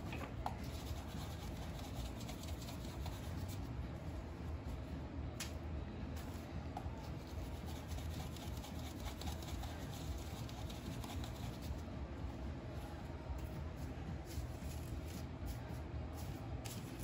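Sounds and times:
low steady hum: 0:00.0 - 0:17.0
dough rustling in sugar: 0:12.6 - 0:17.0.

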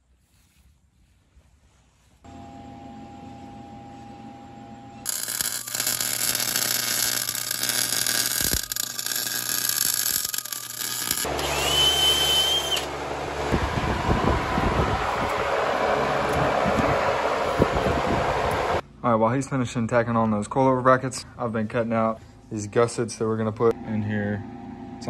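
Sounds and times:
machine noise: 0:02.3 - 0:18.8
steady hum with pitched tones: 0:02.3 - 0:19.8
power tool whining: 0:05.0 - 0:18.8
welding arc crackling hiss: 0:05.1 - 0:12.9.

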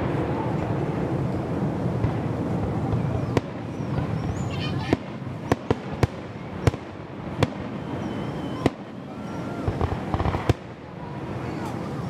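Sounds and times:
fireworks bursting: 0:00.0 - 0:12.0
crackling pops: 0:09.7 - 0:11.9.

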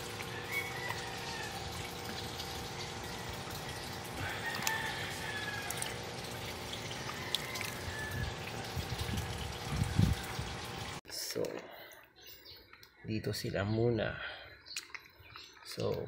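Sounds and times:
water splashing in a plastic basin: 0:00.0 - 0:11.0.

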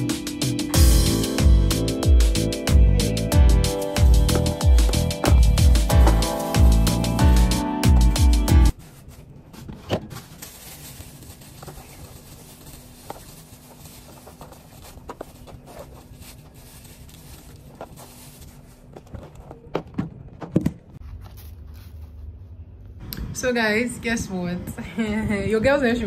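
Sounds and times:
plastic bags crinkling: 0:10.0 - 0:19.7.

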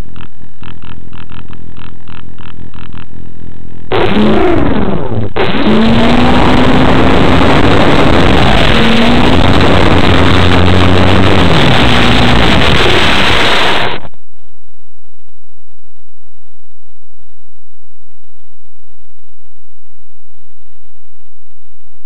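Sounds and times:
model airplane motor and propeller: 0:00.0 - 0:03.9.

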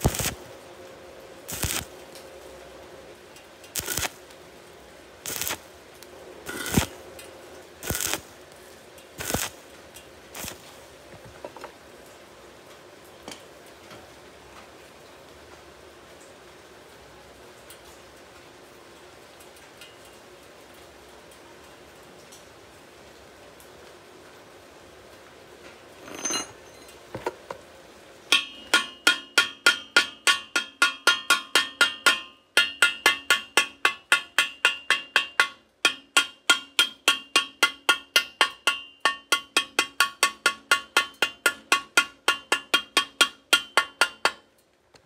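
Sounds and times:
hammer tapping on ringing metal pipe: 0:28.3 - 0:44.5.

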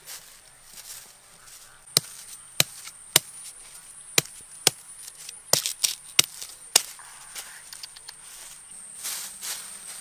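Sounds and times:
knife chopping bamboo: 0:01.9 - 0:03.4, 0:04.1 - 0:04.8, 0:05.5 - 0:06.9.

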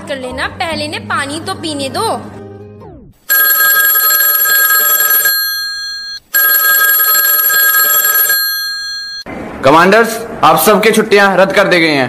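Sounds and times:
telephone ringing: 0:03.3 - 0:09.3.

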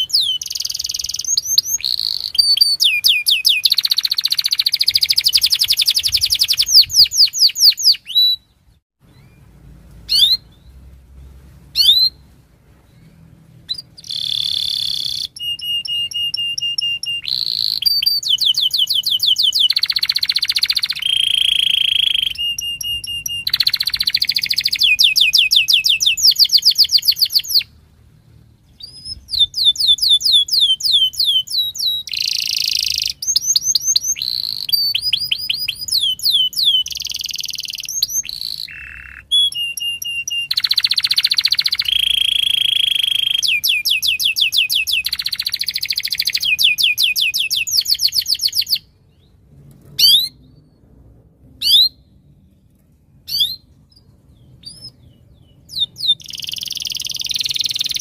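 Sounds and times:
canary singing: 0:00.0 - 0:27.8, 0:28.6 - 0:49.3, 0:49.9 - 0:50.7, 0:53.3 - 0:58.0.

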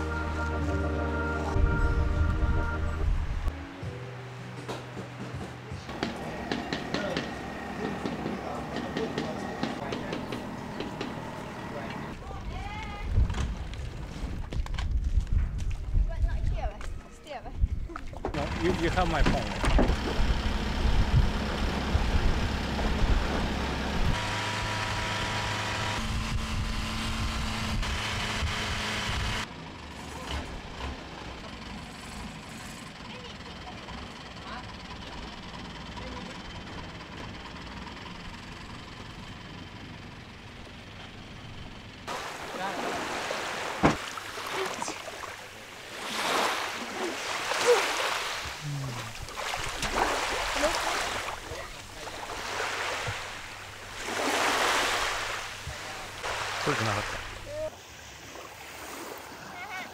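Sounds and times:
boat engine running: 0:05.1 - 0:14.2, 0:18.1 - 0:57.6
small waves washing onto beach: 0:42.1 - 0:59.9.

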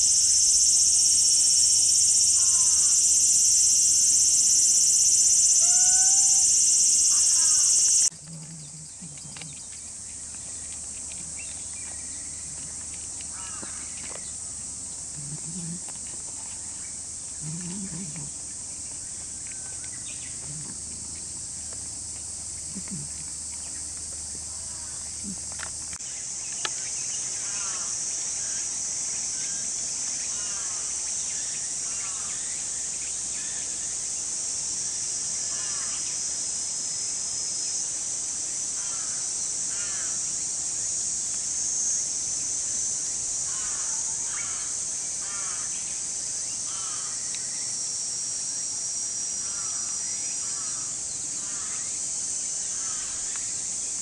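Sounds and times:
insect chorus: 0:00.0 - 0:54.0
crows cawing: 0:13.3 - 0:14.0, 0:38.8 - 0:40.2, 0:43.5 - 0:45.7, 0:46.7 - 0:47.2, 0:49.4 - 0:51.8, 0:52.8 - 0:53.2.

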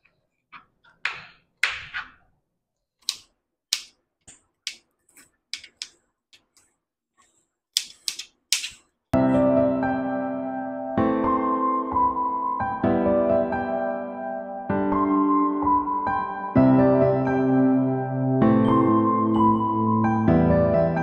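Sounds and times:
piano music: 0:09.2 - 0:21.0.

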